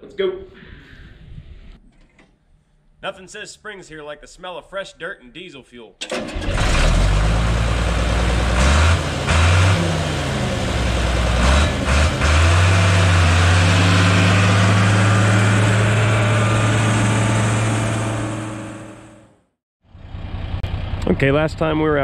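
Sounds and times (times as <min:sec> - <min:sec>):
bulldozer diesel engine revving: 0:06.1 - 0:19.4.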